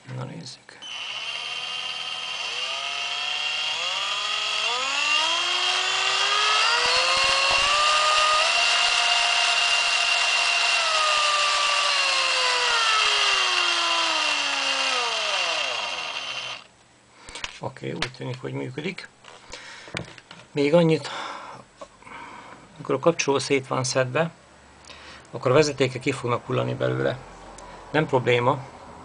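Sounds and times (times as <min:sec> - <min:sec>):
cordless drill motor whining: 0:00.8 - 0:16.7.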